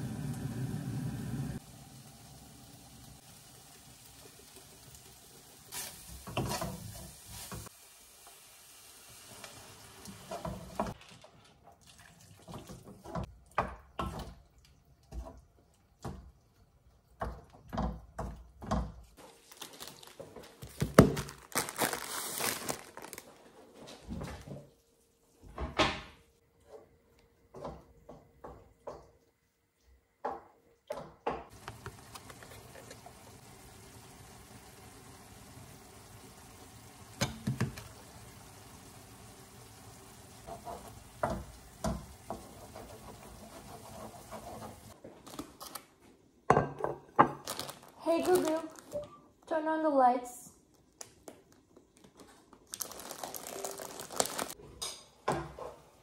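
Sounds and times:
oil sizzling in a wok: 0.0 - 11.0, 31.5 - 45.0
wooden spatula scraping a pan: 5.7 - 7.7, 40.4 - 45.0.

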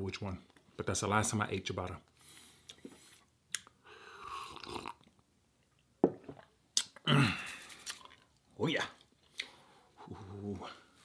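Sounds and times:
chewing: 7.7 - 8.4.

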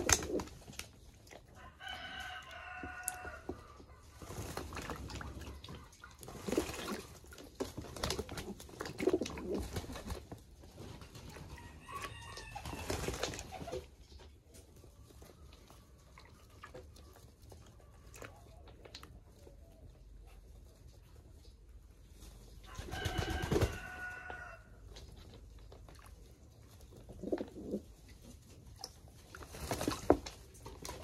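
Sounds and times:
water splashing: 4.4 - 10.1.

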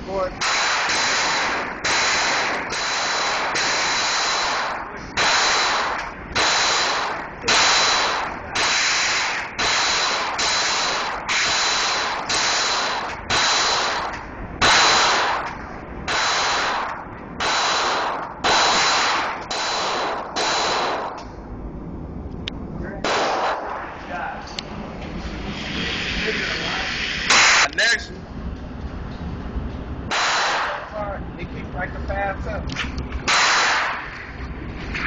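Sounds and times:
handgun shots echoing: 23.0 - 23.9, 30.1 - 30.9, 33.3 - 34.2.

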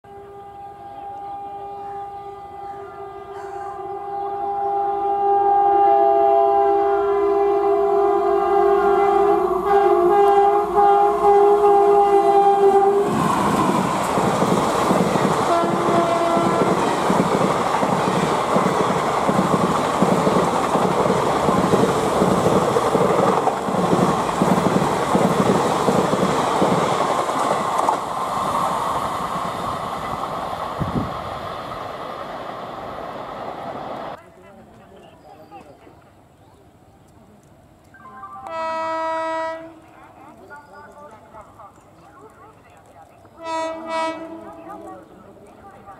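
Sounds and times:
locomotive horn blaring: 0.0 - 13.8, 15.5 - 17.1, 38.2 - 39.8, 43.4 - 45.0.

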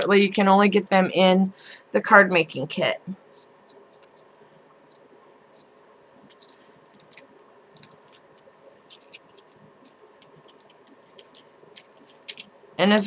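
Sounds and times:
packaging rustling: 3.4 - 12.6.

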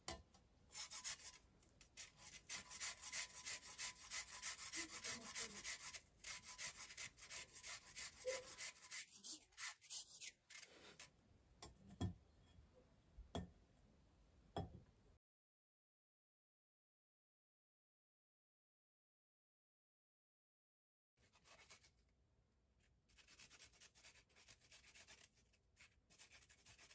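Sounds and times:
carrot scraping on a grater: 0.8 - 11.1.

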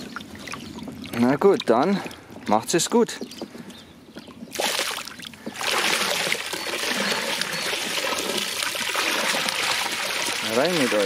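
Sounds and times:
water pouring into pond: 4.5 - 11.0.

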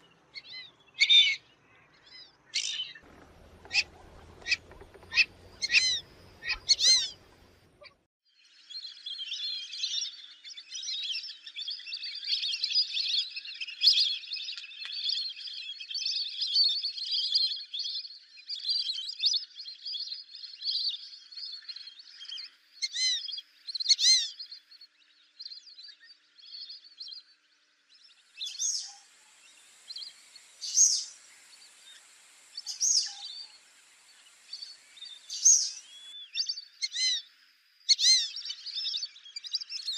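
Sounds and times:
ducks whistling: 2.6 - 8.0, 36.8 - 37.2, 37.9 - 38.6.

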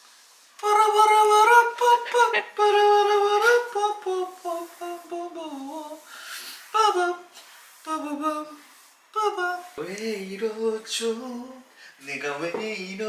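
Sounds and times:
woman humming: 2.0 - 3.5.

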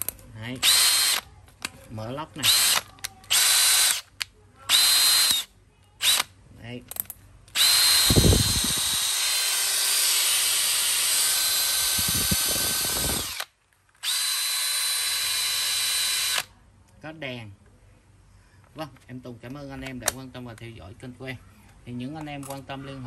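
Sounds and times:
cordless drill whining: 0.6 - 1.2, 2.4 - 4.1, 4.7 - 6.2, 7.6 - 16.5.

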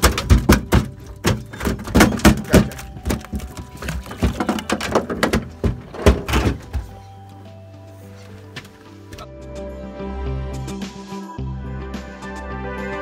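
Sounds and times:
rapid knocks and thumps: 0.0 - 7.0
faint background music: 0.0 - 13.0.

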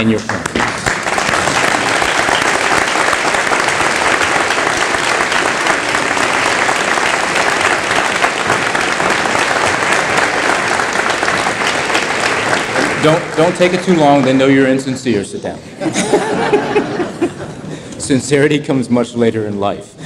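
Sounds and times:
audience applauding: 0.0 - 15.2.

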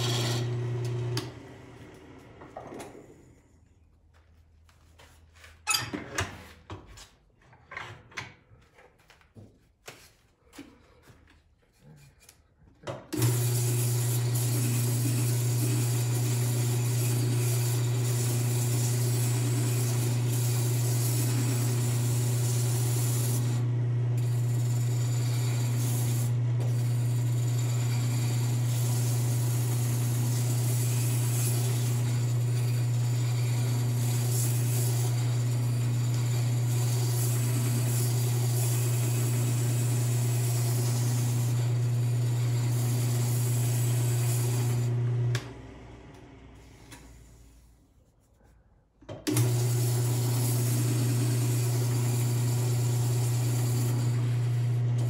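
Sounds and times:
wood lathe humming: 0.0 - 3.1, 13.1 - 46.3, 49.3 - 55.0.

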